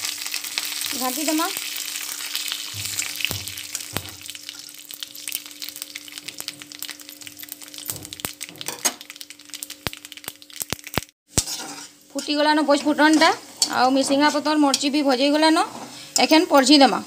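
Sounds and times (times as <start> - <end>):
spices sizzling in hot oil: 0.0 - 17.0
seeds popping and crackling: 9.2 - 11.2.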